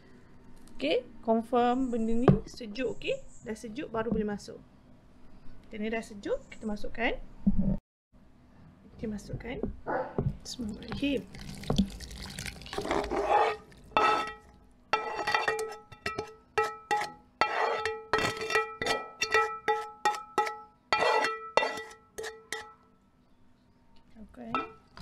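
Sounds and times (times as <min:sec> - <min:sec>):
wet sliding pour: 0:11.1 - 0:14.0.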